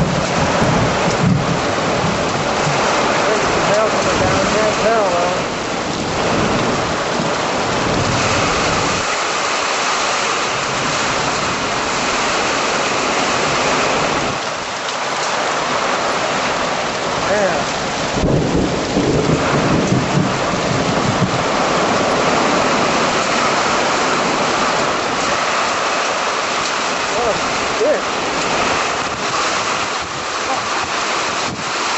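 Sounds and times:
low rumble of thunder: 0.0 - 9.1, 17.2 - 25.5
heavy rain pouring: 0.0 - 31.9.

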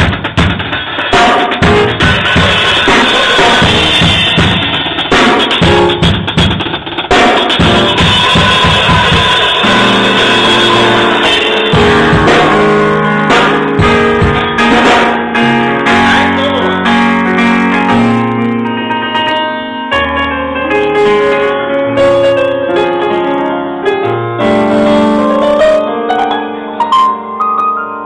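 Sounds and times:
drum kit and cymbal hits: 0.0 - 18.2
live band music: 0.0 - 27.1
electronic keyboard chords: 0.0 - 28.0.

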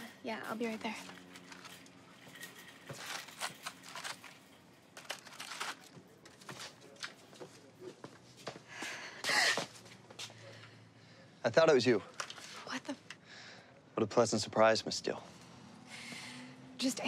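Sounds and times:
plastic packaging rustling: 1.0 - 7.1.

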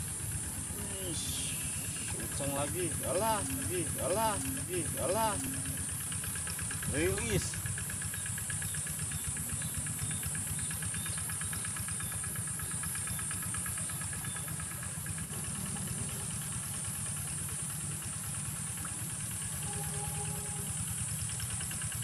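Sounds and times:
small engine idling: 0.0 - 22.0
high-pitched buzz: 0.7 - 5.9.

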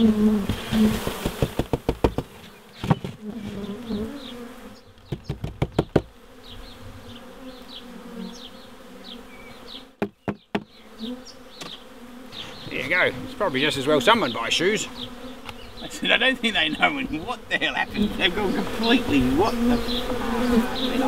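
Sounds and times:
bees buzzing: 0.0 - 21.0
cardboard box knocking on wood: 0.4 - 3.2, 5.1 - 6.1, 10.0 - 10.7.

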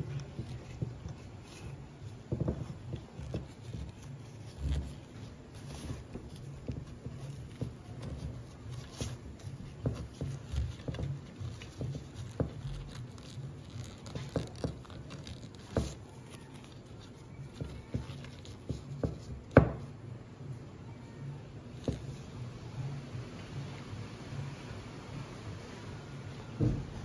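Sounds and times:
fabric taps and rustles on frame: 0.0 - 20.0, 26.6 - 27.0.

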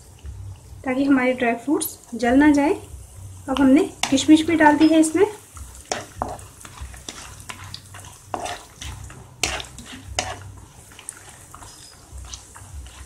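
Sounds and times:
ghee sizzling: 0.0 - 13.0
nuts knocking against a pan: 5.6 - 7.5
spatula scraping a pan: 5.6 - 13.0.

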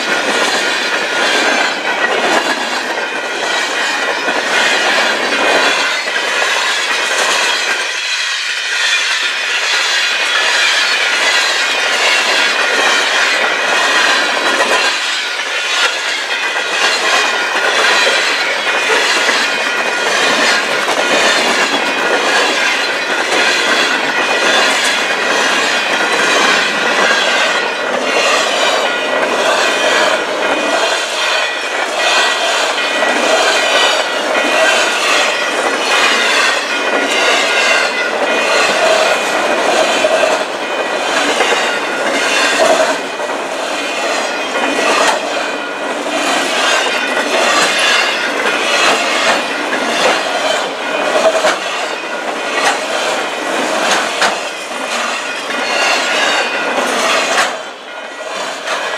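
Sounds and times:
freight train rolling past: 0.0 - 58.9.

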